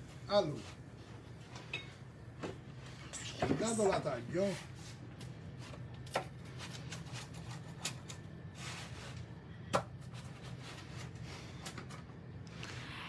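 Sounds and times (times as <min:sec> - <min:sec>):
pizza cutter crunching crust: 0:05.6 - 0:09.2.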